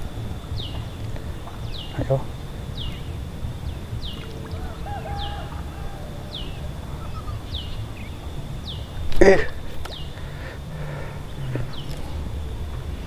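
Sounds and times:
low steady rumble: 0:00.0 - 0:13.0
bird whistling call: 0:00.6 - 0:10.6.

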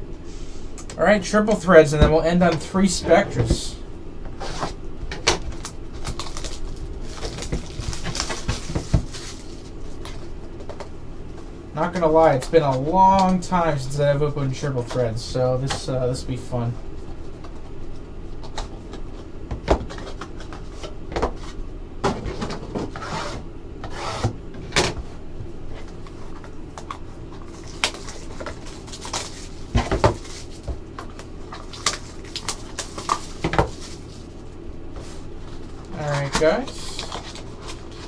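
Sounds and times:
cardboard packaging rustling: 0:05.4 - 0:10.9, 0:25.7 - 0:38.0.

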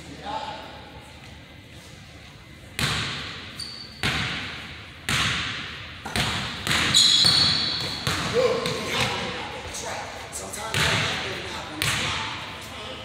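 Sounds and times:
sneaker squeak on floor: 0:03.6 - 0:04.2, 0:06.8 - 0:08.2.

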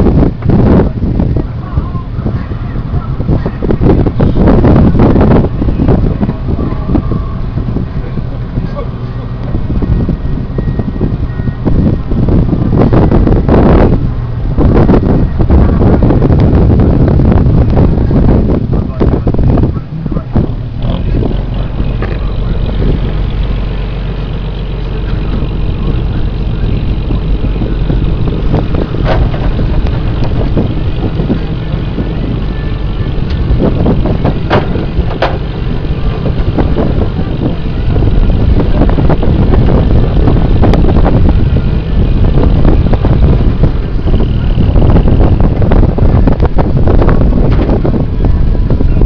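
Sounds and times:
boat engine running: 0:00.0 - 0:49.0
wind noise on microphone: 0:00.0 - 0:49.0
sharp knocks: 0:34.5 - 0:35.4.

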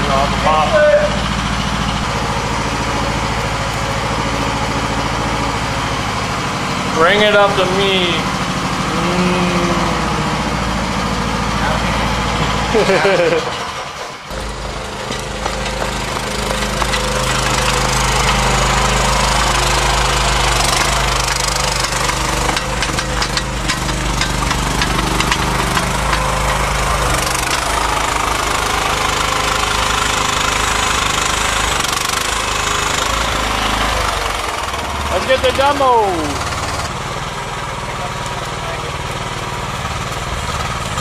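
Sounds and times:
excavator engine running: 0:00.0 - 0:41.0
machine clicks and rattles: 0:14.3 - 0:28.8.

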